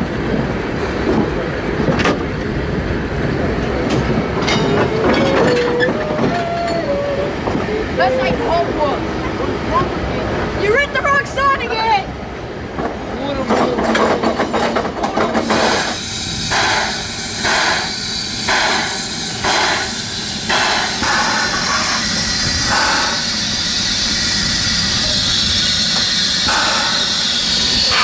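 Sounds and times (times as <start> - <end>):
steam air pump strokes: 15.4 - 28.0
steam hissing: 15.4 - 28.0.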